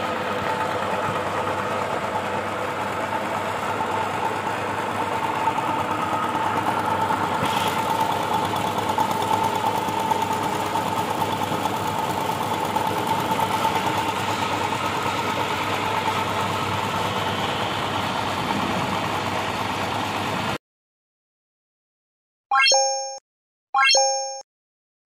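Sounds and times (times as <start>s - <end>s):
sprayer pump motor running: 0.0s - 20.6s
high steady tone: 22.5s - 23.2s, 23.8s - 24.4s.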